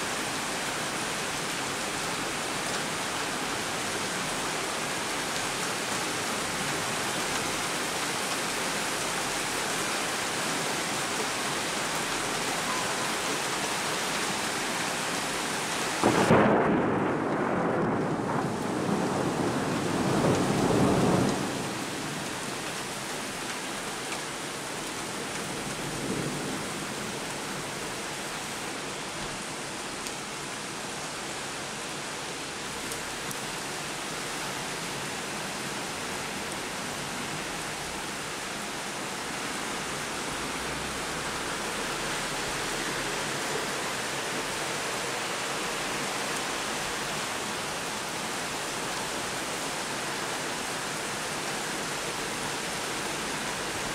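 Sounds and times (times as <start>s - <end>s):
floodwater rushing: 0.0s - 16.4s, 18.4s - 53.9s
heavy rain pouring: 0.0s - 53.9s
thunder rumble: 16.0s - 21.9s.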